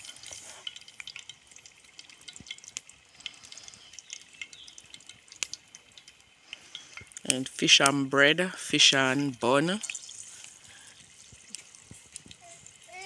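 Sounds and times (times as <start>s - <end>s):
crackling and popping cooking pot: 0.0s - 13.0s.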